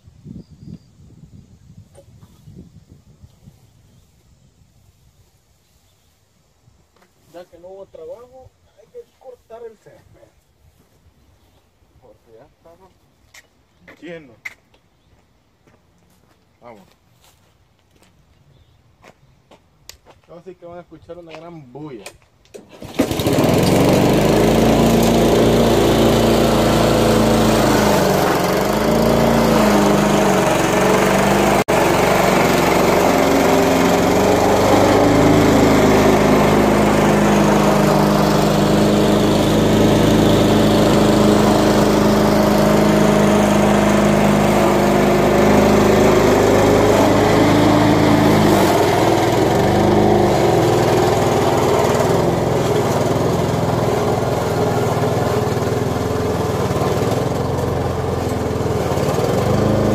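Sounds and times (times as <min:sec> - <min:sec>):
lawn mower cutting grass: 0:22.6 - 0:59.9.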